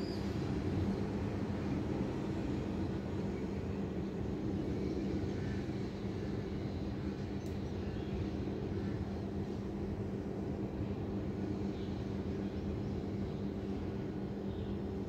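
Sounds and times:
city traffic rumble: 0:00.0 - 0:15.0
constant low hum: 0:00.0 - 0:15.0.

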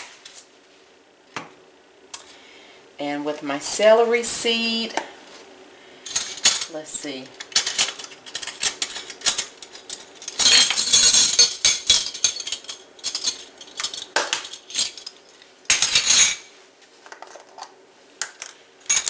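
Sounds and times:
metal measuring spoons jangling: 0:06.1 - 0:06.8, 0:07.4 - 0:15.1.

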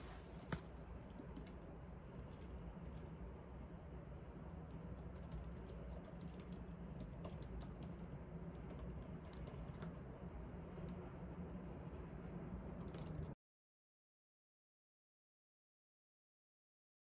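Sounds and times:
low room hum: 0:00.0 - 0:13.4.

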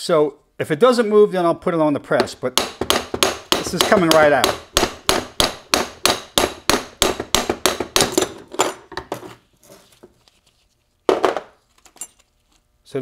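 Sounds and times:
hammer tapping metal shaft: 0:02.2 - 0:08.3.

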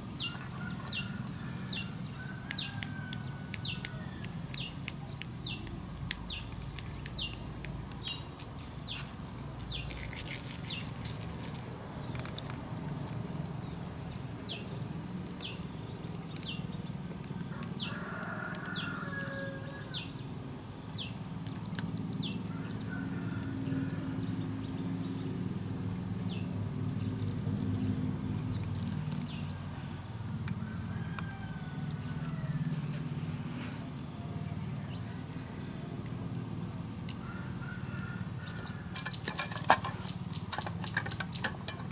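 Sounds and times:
bird chirping: 0:00.0 - 0:11.1, 0:11.9 - 0:29.9
insect drone: 0:05.4 - 0:41.9.

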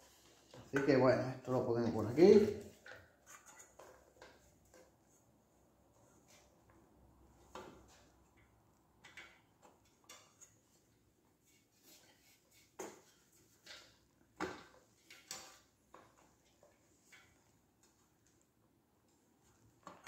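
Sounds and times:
motorcycle parts clicking and knocking: 0:07.4 - 0:10.6.

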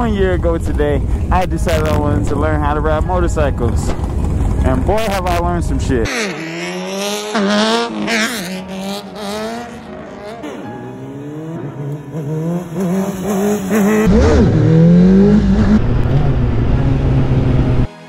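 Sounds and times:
wind rumble: 0:00.0 - 0:06.1, 0:13.4 - 0:17.9
motorcycle engine revving: 0:00.0 - 0:18.0.

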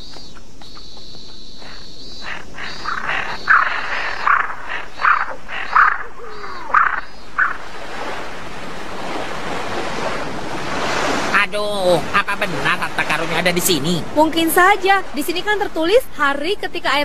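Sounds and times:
steady background hiss: 0:00.0 - 0:10.6, 0:11.2 - 0:17.0
crows cawing: 0:00.1 - 0:07.7.

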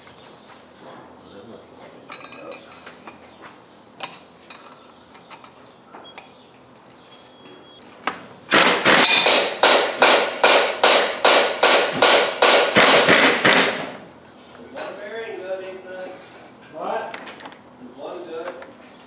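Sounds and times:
pneumatic impact wrench hammering: 0:08.5 - 0:14.0.

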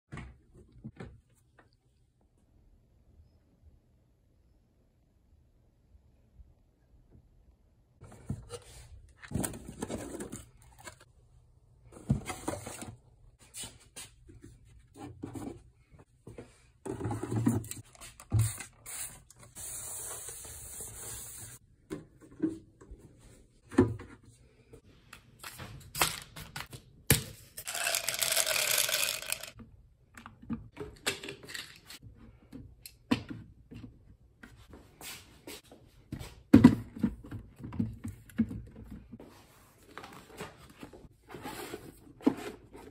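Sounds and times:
plastic bottles clicking and knocking: 0:27.6 - 0:29.6.

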